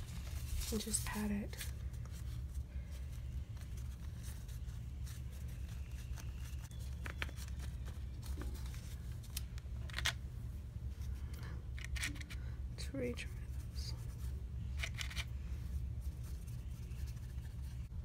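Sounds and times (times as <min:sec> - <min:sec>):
paper napkin rustling and dabbing: 0:00.0 - 0:09.2
steady low hum: 0:00.0 - 0:18.0.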